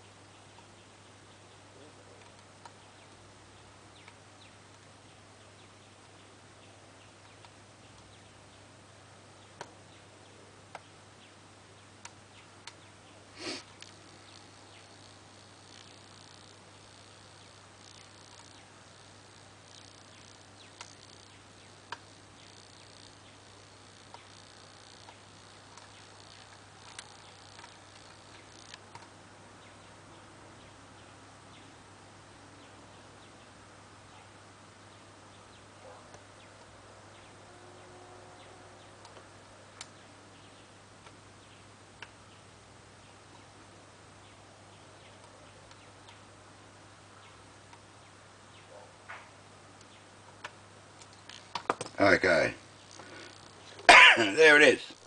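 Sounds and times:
low steady hum: 0.0s - 55.0s
brief hiss: 13.4s - 13.7s.

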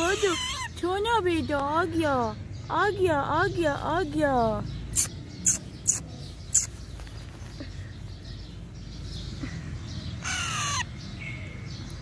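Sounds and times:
parakeet squawk: 0.0s - 0.9s, 4.9s - 6.8s, 10.2s - 11.0s.

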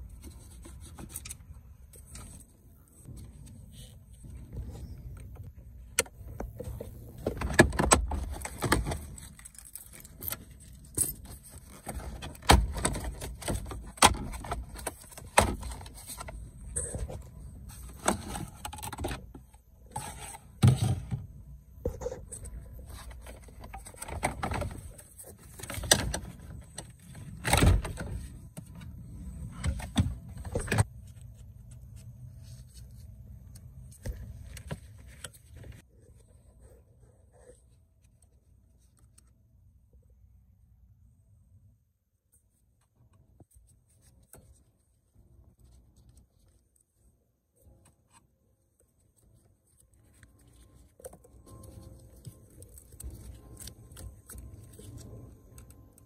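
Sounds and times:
tools and plastic panels rattling: 6.4s - 21.2s, 22.8s - 30.9s.

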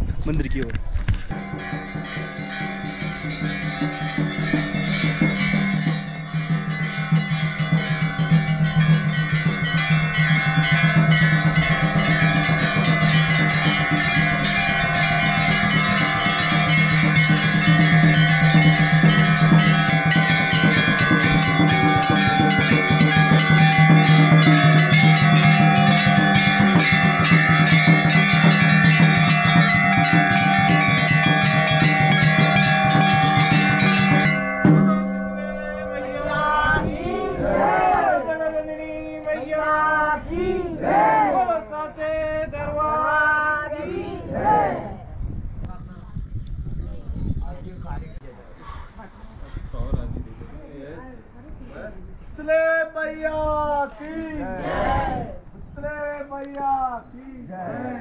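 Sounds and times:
bells ringing and clanging: 1.3s - 38.7s.

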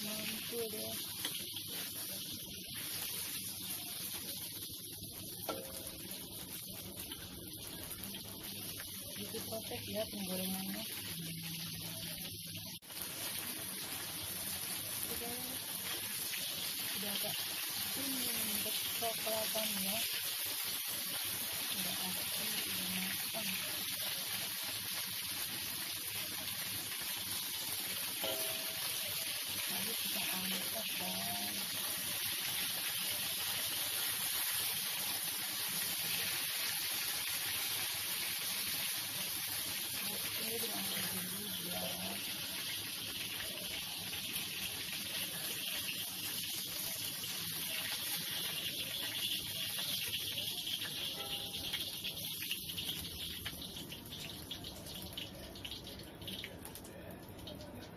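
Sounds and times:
chicken frying in hot oil: 0.0s - 57.9s.

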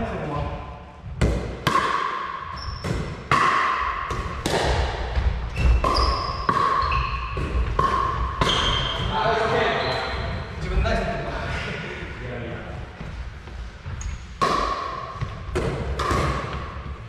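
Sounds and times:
ball bouncing on wooden floor: 0.4s - 10.6s, 13.0s - 17.0s
shoes squeaking on floor: 2.5s - 3.0s, 5.4s - 11.3s, 13.8s - 14.4s
paddles hitting plastic ball: 2.8s - 8.8s.

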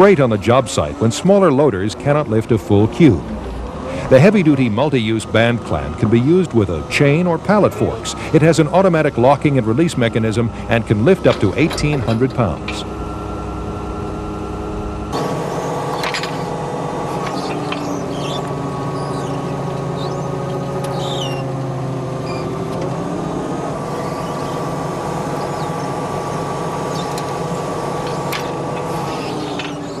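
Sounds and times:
engine running: 0.0s - 30.0s
short high squeaks: 15.2s - 21.6s, 22.2s - 22.6s, 28.9s - 30.0s.

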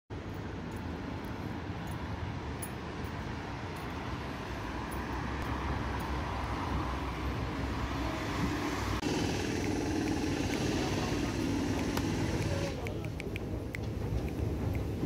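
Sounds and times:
street traffic: 0.1s - 15.0s
truck diesel engine running: 6.8s - 15.0s.

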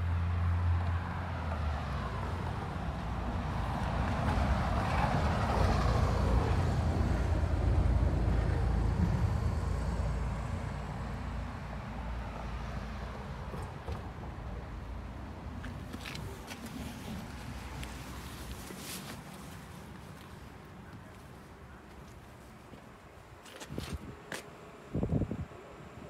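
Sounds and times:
low traffic rumble: 0.0s - 26.0s
vehicle passing by: 0.1s - 19.5s.

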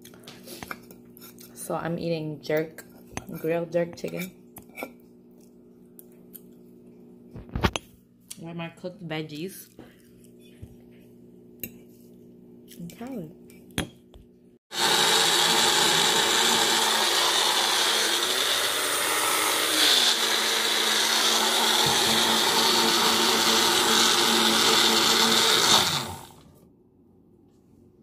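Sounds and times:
kitchen appliance motor running: 14.7s - 26.6s.

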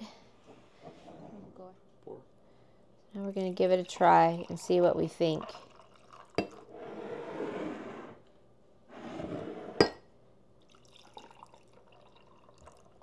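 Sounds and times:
liquid pouring into glass of ice: 5.3s - 6.7s, 10.7s - 13.0s.

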